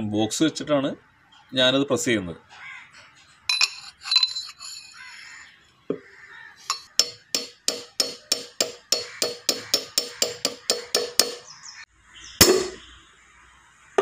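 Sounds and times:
hammer striking metal socket: 6.7s - 11.4s.

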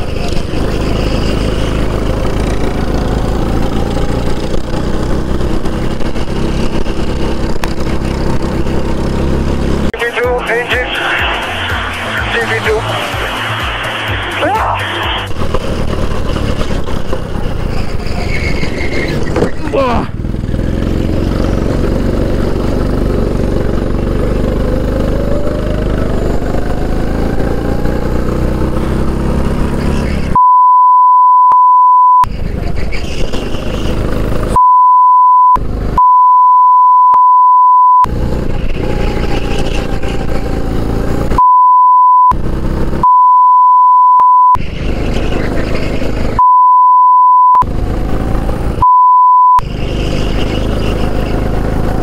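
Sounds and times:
kart engine at full throttle: 0.0s - 30.5s, 32.2s - 34.6s, 35.4s - 36.2s, 38.0s - 43.2s, 44.5s - 52.0s
censor bleep: 30.4s - 32.3s, 34.6s - 38.1s, 41.4s - 42.4s, 43.0s - 44.6s, 46.4s - 47.6s, 48.8s - 49.6s.

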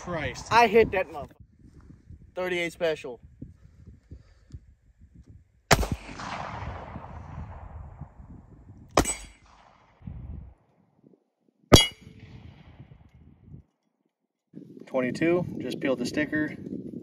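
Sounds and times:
sharp crack: 5.7s - 7.1s, 8.9s - 10.0s
gunshots echoing: 5.7s - 7.8s, 9.0s - 10.0s, 11.7s - 12.8s.

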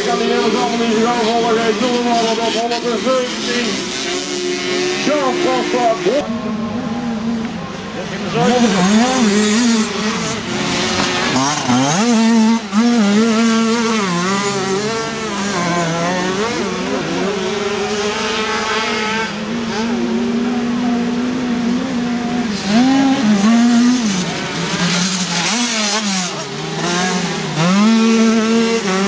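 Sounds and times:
small motorcycles revving: 0.0s - 29.0s.

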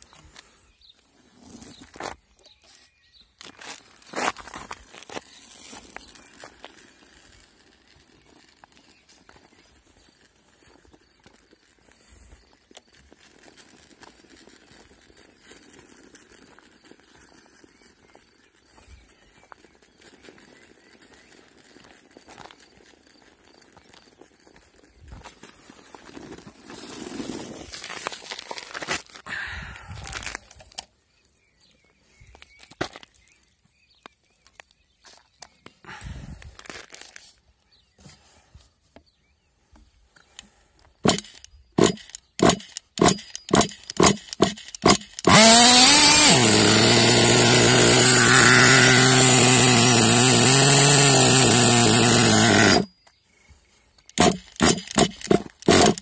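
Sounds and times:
footsteps crunching grit on asphalt: 0.0s - 29.3s, 29.9s - 30.6s, 36.4s - 38.4s
rustling and scraping handling noise: 0.0s - 29.3s, 29.9s - 30.9s, 36.4s - 45.2s
small clicks and ticks: 3.8s - 26.4s, 40.2s - 45.4s
small clicks: 40.2s - 46.4s.

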